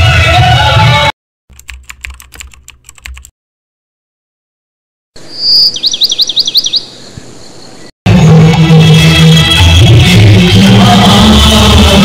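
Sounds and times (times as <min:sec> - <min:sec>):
quick typing-like clicks: 0:01.5 - 0:03.3
high warbling chirp: 0:05.2 - 0:07.9.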